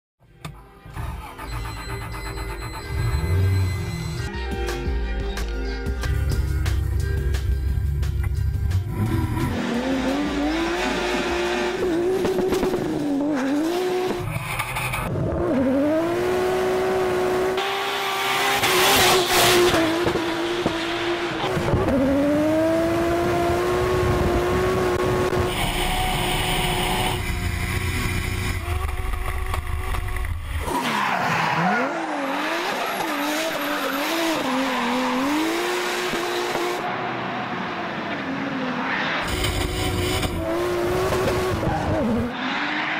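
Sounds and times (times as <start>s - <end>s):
car engine revving: 8.6s - 42.9s.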